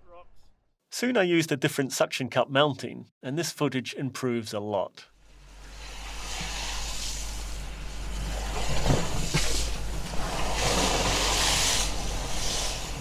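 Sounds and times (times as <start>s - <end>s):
vehicle engine and road rumble: 5.2s - 13.0s
water splashing from tyres: 5.4s - 13.0s.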